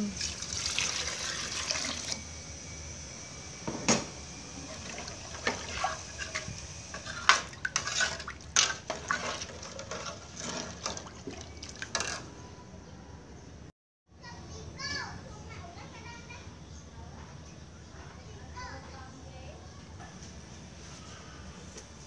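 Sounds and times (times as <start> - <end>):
liquid sloshing: 0.2 - 2.2, 4.7 - 12.3.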